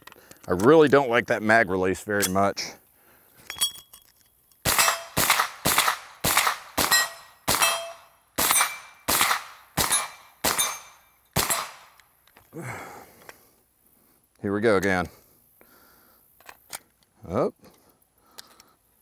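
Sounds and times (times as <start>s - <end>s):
gunshots with echo: 4.7s - 11.9s.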